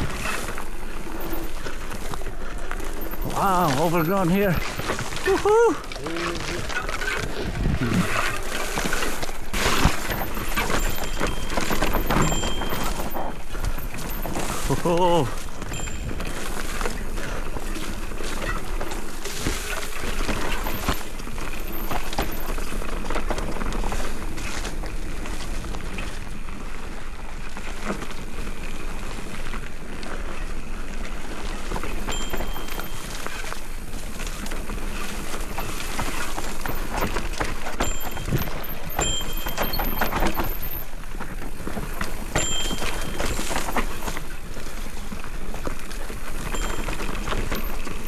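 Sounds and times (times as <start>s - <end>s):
bike rattling clicks and knocks: 0.0s - 48.0s
bike tyres on dirt trail: 0.0s - 48.0s
wind rumble on microphone: 7.2s - 8.8s.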